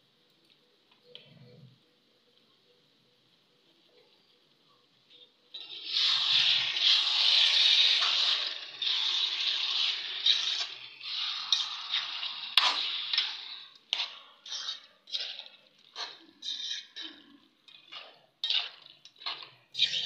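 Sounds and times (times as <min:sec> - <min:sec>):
spatula scraping metal wok: 0:05.6 - 0:20.0.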